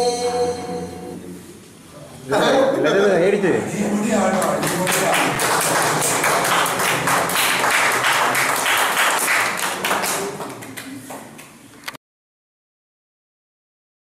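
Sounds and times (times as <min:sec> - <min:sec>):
people clapping: 0:04.3 - 0:11.7.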